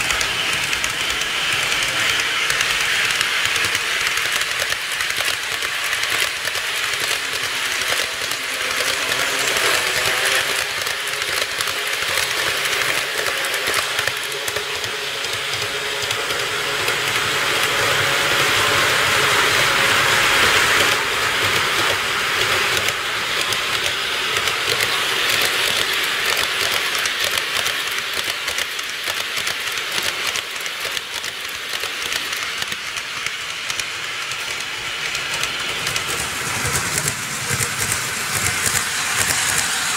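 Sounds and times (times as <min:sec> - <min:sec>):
model trains rolling on track: 0:00.0 - 0:39.9.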